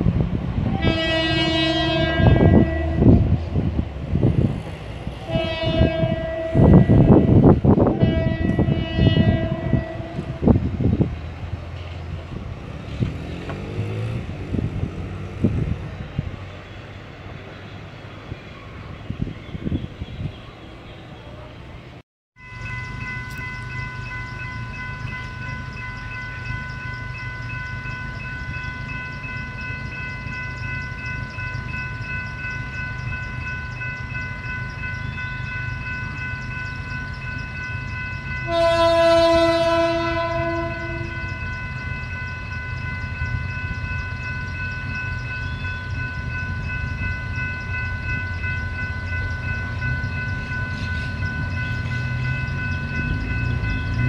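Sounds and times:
diesel locomotive engine rumble: 0.0s - 54.0s
locomotive horn blast: 0.6s - 3.3s, 5.2s - 10.6s, 38.4s - 41.4s.

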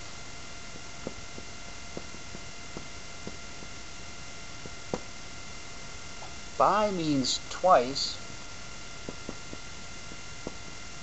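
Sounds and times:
electrical hum: 0.0s - 11.0s
marker tapping on whiteboard: 1.0s - 3.8s, 4.6s - 5.1s, 9.0s - 10.7s.

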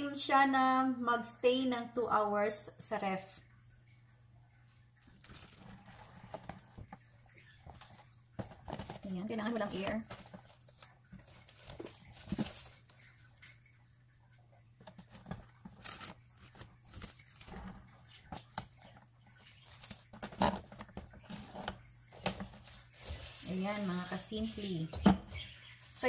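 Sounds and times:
plastic cling wrap crinkling: 5.0s - 13.3s, 14.8s - 26.0s.

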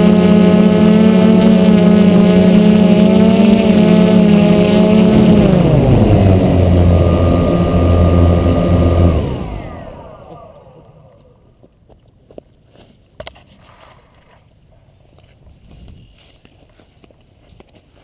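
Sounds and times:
quadcopter motors buzzing: 0.0s - 11.2s.

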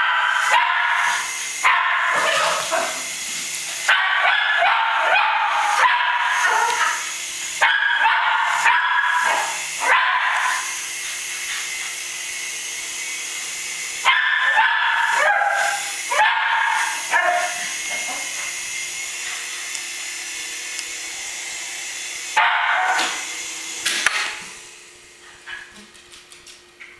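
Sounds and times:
dog barking: 0.0s - 3.1s, 3.8s - 10.7s, 14.0s - 18.5s, 22.4s - 23.2s
toy helicopter motor whir: 0.0s - 26.2s.

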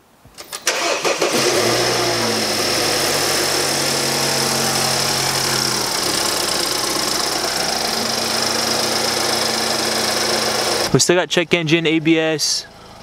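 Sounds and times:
car engine starting and idling: 0.4s - 13.0s
steady high whine: 1.8s - 11.8s.

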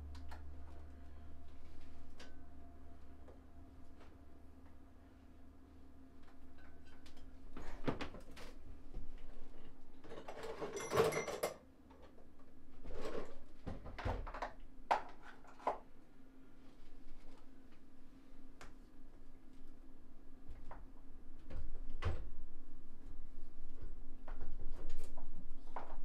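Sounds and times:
tools and metal parts clinking: 10.1s - 11.6s.

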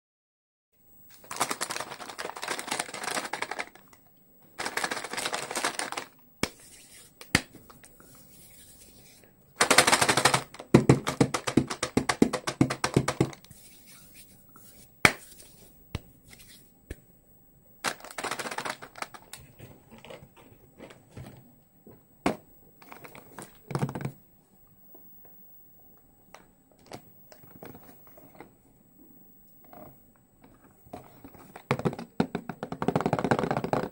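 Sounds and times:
plastic wrappers crinkling: 1.1s - 16.6s, 17.8s - 21.0s, 22.8s - 23.8s
rapid sharp taps and clicks: 9.6s - 13.5s.

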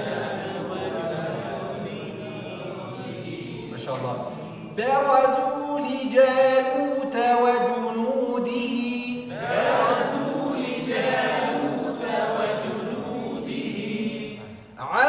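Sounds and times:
voices reciting in unison: 0.0s - 15.0s
man chanting recitation: 1.7s - 9.4s, 14.8s - 15.0s.

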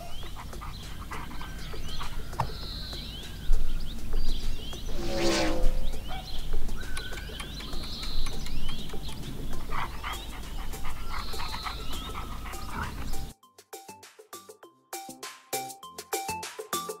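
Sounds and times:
dog panting: 0.0s - 2.3s, 8.4s - 13.4s
outdoor ambience: 0.0s - 13.3s
birds chirping: 0.0s - 13.4s.

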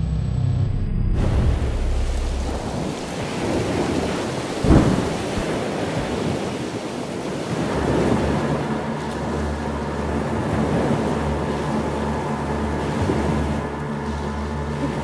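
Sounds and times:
loud boom: 0.0s - 3.9s, 4.6s - 5.6s
steady rushing noise: 0.0s - 15.0s.

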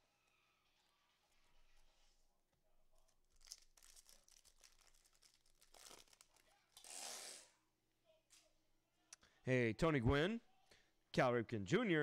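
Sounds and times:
wrapper rustle: 3.0s - 7.1s
wrapper tearing and crinkling: 3.2s - 7.1s.

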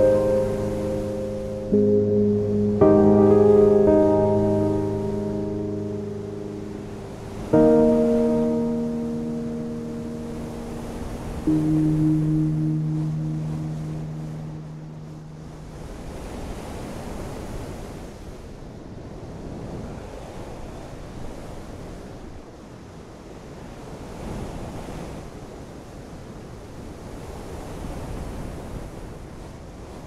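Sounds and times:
ocean waves washing: 0.0s - 18.1s.

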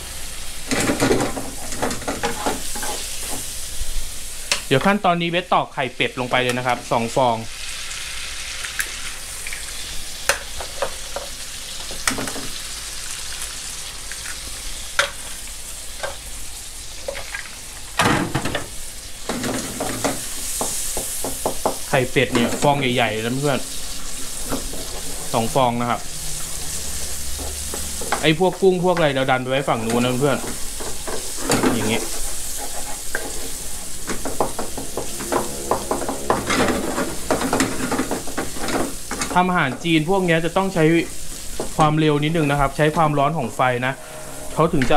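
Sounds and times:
eggs frying: 0.0s - 43.6s
food sizzling in a frying pan: 0.0s - 44.9s
wooden spatula scraping wok: 22.2s - 40.2s, 41.1s - 44.9s.

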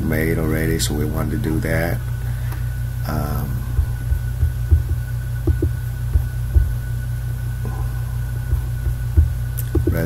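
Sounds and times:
low electrical hum: 0.0s - 10.0s
soft low thumps: 3.1s - 10.0s.

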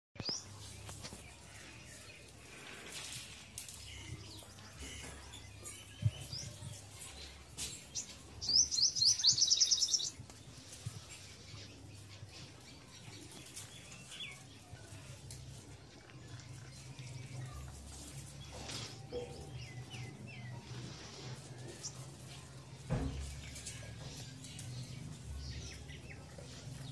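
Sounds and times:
bird chirping: 7.9s - 10.3s.

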